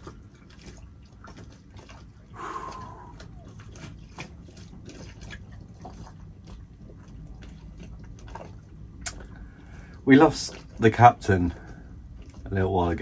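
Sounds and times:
low steady rumble: 0.0s - 13.0s
man exhaling through pursed lips: 2.3s - 3.4s.

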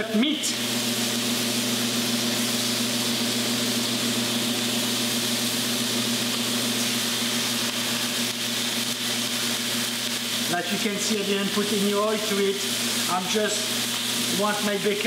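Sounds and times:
stovetop hum and hiss: 0.0s - 15.0s.

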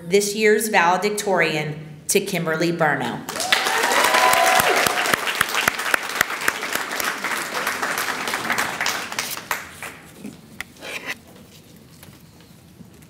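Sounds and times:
audience applause: 3.3s - 10.0s.

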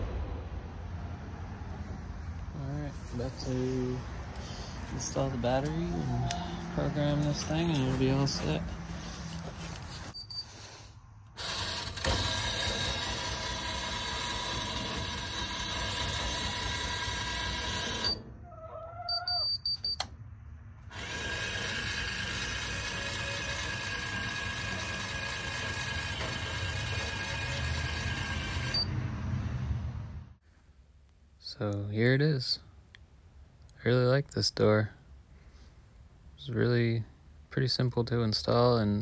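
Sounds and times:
electric gear motor running: 11.4s - 18.2s, 20.9s - 28.9s.

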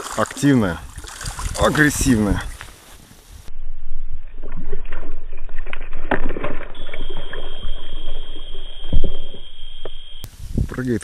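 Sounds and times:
fish splashing in water: 0.0s - 1.8s, 4.4s - 9.8s
steady high whine: 3.5s - 10.3s.

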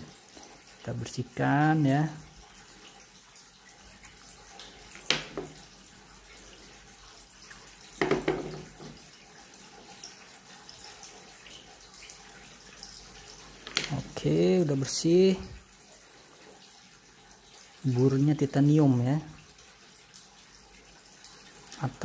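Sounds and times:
sharp knocks: 8.0s - 9.0s.

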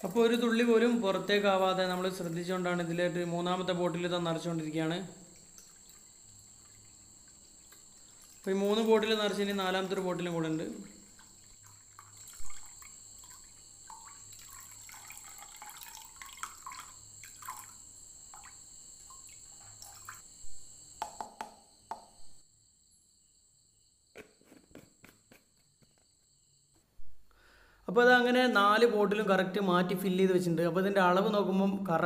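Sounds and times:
liquid trickling and gurgling: 5.2s - 20.4s.

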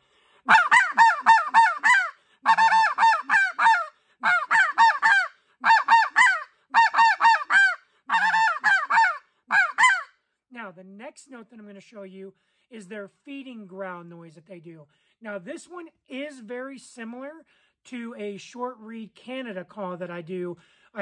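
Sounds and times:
goose call barks: 0.5s - 10.1s.

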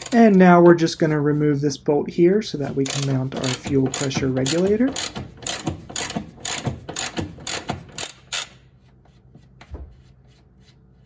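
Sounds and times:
ratchet wrench clicking: 2.8s - 8.6s.

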